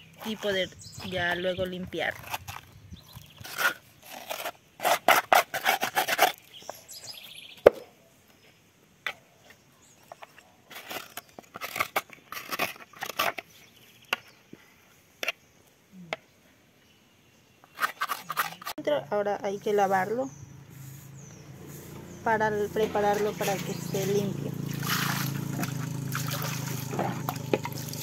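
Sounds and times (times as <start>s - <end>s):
metal spoon scraping gourd shell: 0.0s - 6.8s, 17.6s - 18.9s.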